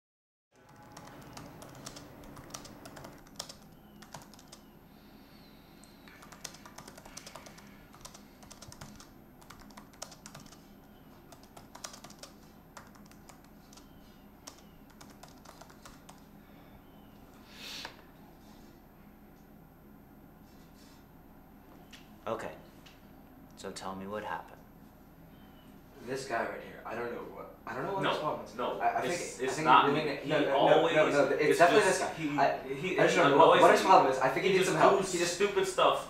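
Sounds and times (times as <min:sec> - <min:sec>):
low room hum: 0:00.5 - 0:36.0
laptop keyboard typing: 0:00.6 - 0:04.8, 0:05.8 - 0:16.3.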